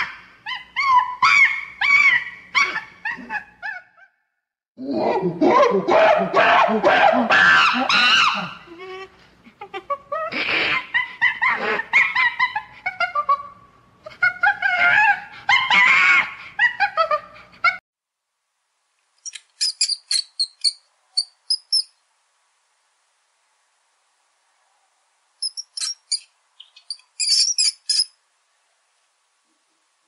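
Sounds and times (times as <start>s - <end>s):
monkey cries wavering in pitch: 0.0s - 4.2s, 4.9s - 9.0s, 10.0s - 17.3s
high-pitched mouse squeaks: 19.2s - 21.9s, 25.4s - 28.1s.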